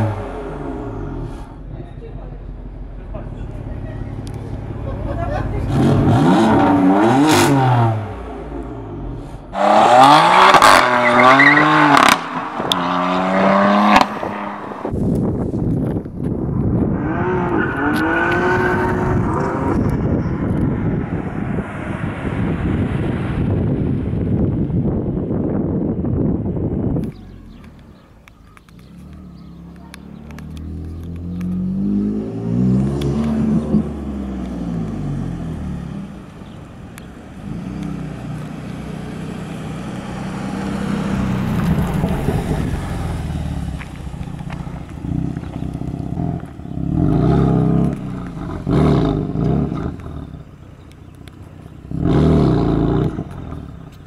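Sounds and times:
car engine running: 33.2s - 52.2s.

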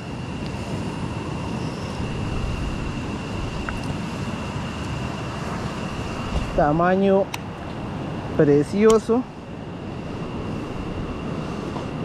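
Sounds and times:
wind on microphone: 0.0s - 7.0s, 7.6s - 12.0s
tiny tick: 8.8s - 9.0s.

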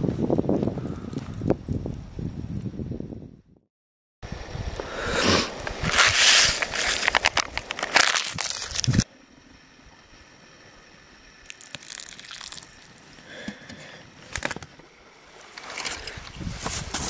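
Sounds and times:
water pouring onto oats: 11.5s - 13.0s.

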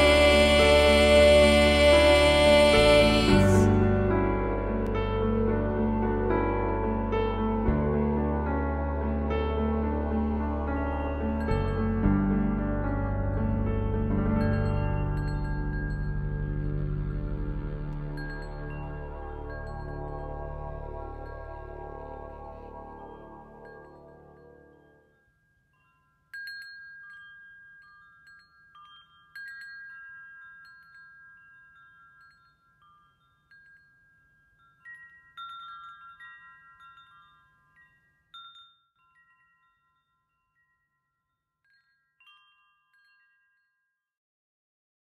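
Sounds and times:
ambient music: 0.0s - 25.0s
chimes ringing: 14.3s - 17.1s, 17.9s - 40.8s.

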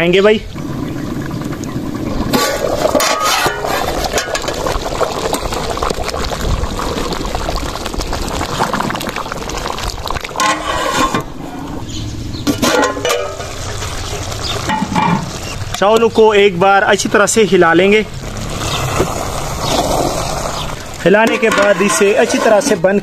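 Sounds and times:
rice boiling in a pot: 0.4s - 23.0s
ladle stirring: 1.6s - 6.4s, 8.5s - 11.6s, 18.5s - 23.0s.

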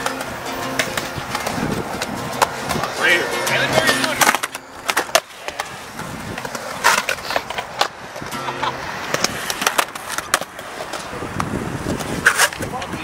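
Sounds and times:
acoustic guitar strumming: 0.0s - 5.4s, 8.3s - 9.4s
skateboard clacking on ground: 0.0s - 13.0s
skateboard wheels rolling on concrete: 0.0s - 13.0s.

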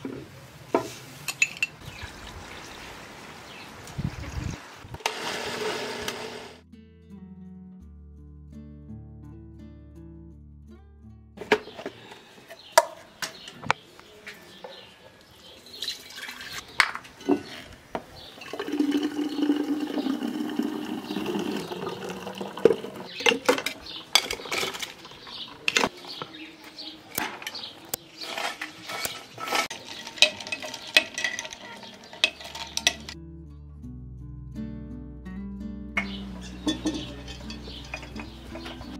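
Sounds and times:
glass stirrer clinking: 1.3s - 1.8s, 22.7s - 25.8s, 28.3s - 33.2s, 36.0s - 38.9s
glassware clinking: 1.3s - 1.8s, 22.6s - 25.9s, 29.6s - 33.2s, 36.0s - 38.9s
liquid pouring: 18.3s - 25.7s.

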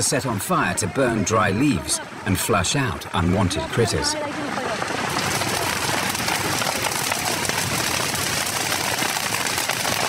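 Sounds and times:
fire crackling: 4.6s - 10.0s.

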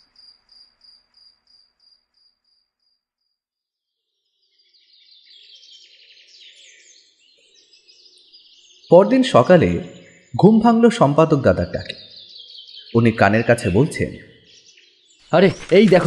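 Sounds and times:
crickets chirping: 0.0s - 3.3s
birds chirping: 4.2s - 16.0s.

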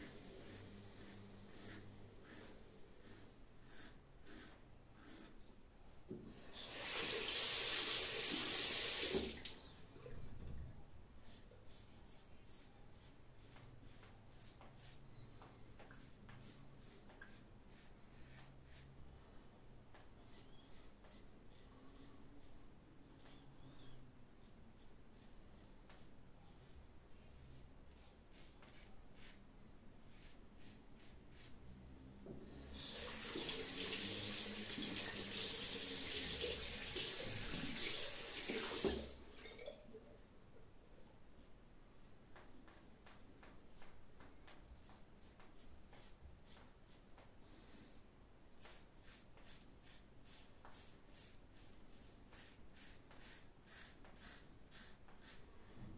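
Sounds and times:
tap running water: 6.6s - 9.6s, 32.8s - 39.8s.

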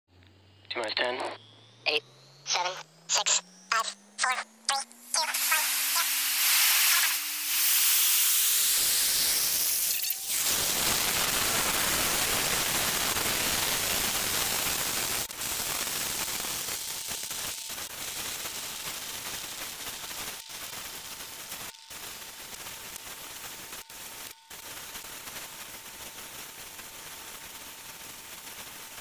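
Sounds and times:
rising tone: 1.3s - 10.4s.

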